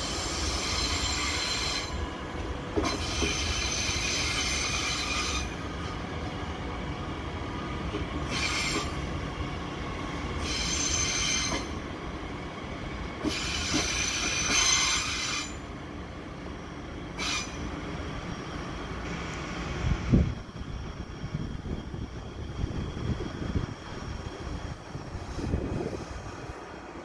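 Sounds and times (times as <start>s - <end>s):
train wheels squealing: 0.0s - 2.2s, 2.8s - 5.8s, 8.2s - 11.9s, 13.2s - 15.8s, 16.5s - 19.7s
train running rumble: 0.0s - 27.0s.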